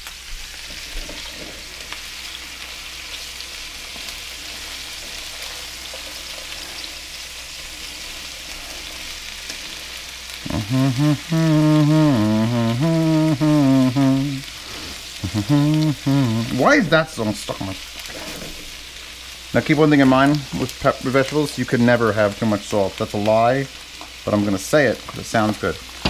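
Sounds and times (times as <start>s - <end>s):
food sizzling in a frying pan: 0.0s - 26.0s
person humming a tune: 10.4s - 16.8s.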